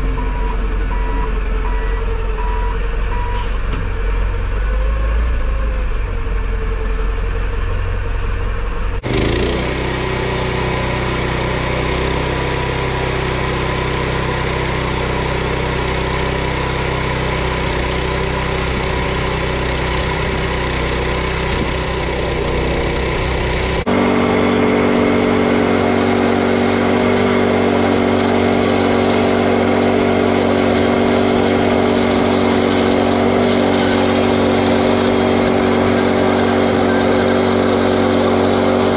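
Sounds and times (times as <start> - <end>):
sawmill engine running: 0.0 - 38.9
tractor engine running: 0.0 - 38.9
band blade sawing log: 23.9 - 38.9.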